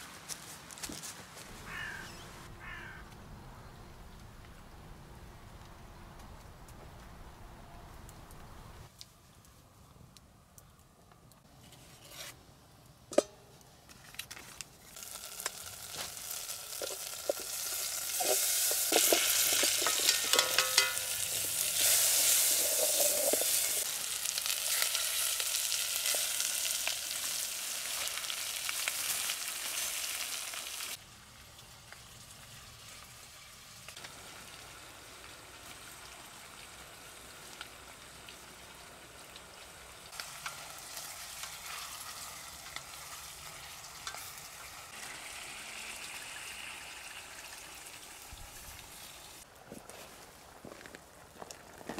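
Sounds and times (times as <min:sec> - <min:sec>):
food sizzling in a pot: 0:14.8 - 0:49.5
utensil clinking and scraping pot: 0:16.6 - 0:23.9.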